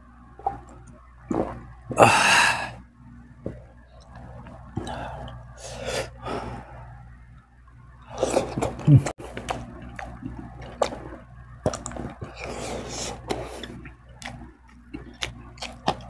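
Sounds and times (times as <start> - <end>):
person eating: 3.4 - 6.7, 8.1 - 16.0.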